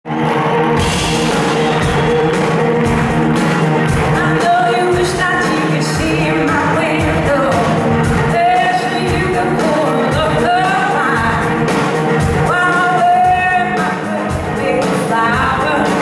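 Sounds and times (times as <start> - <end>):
bass: 0.1 - 16.0
drums: 0.1 - 16.0
electric guitars: 0.1 - 16.0
woman singing: 4.0 - 16.0.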